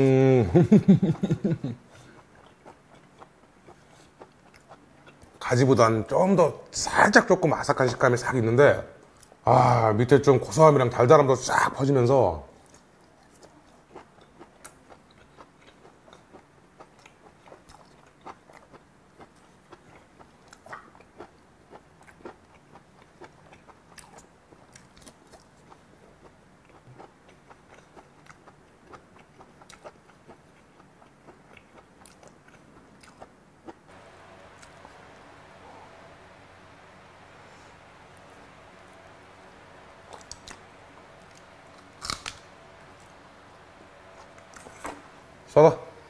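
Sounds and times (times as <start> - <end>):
chewing clicks: 40.1 - 43.2.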